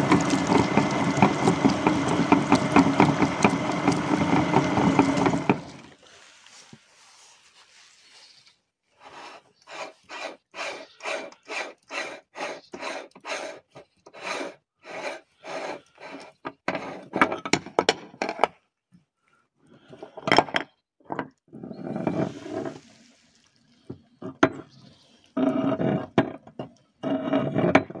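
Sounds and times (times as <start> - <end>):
hand-cranked meat grinder grating: 0.0 - 5.9, 9.1 - 17.1, 27.0 - 28.0.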